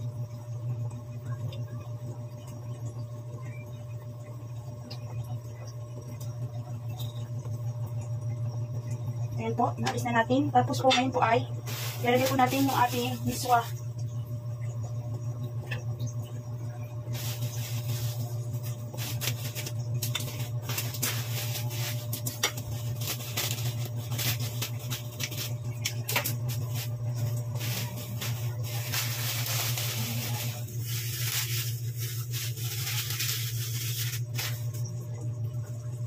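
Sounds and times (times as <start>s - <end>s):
steady low hum: 0.0s - 36.0s
plastic packets crinkling: 11.6s - 13.7s, 17.1s - 34.8s.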